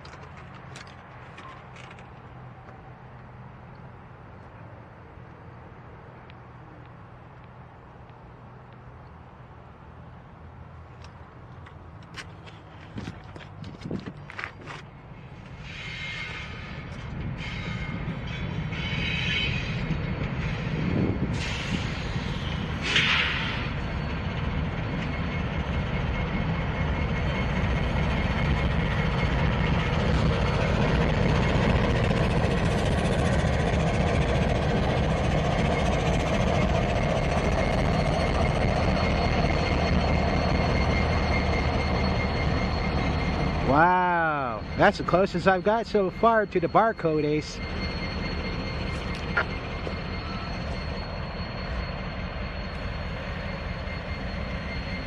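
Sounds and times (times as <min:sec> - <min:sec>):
diesel locomotive engine rumble: 0:00.0 - 0:55.0
high whine: 0:15.1 - 0:55.0
sharp metal clank or screech: 0:15.6 - 0:24.3.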